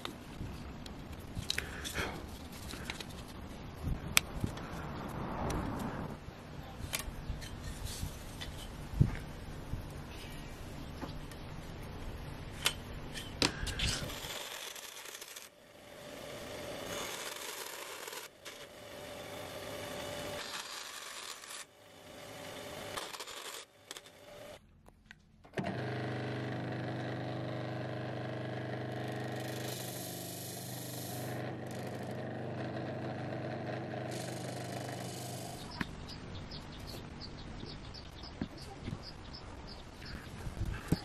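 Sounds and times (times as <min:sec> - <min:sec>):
band saw cutting wood: 0:13.7 - 0:24.6, 0:25.6 - 0:35.8
disc sander humming: 0:25.5 - 0:35.9.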